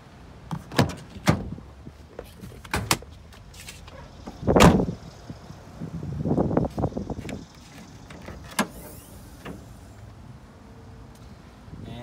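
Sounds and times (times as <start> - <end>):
hood latch clicks: 8.0 - 9.6.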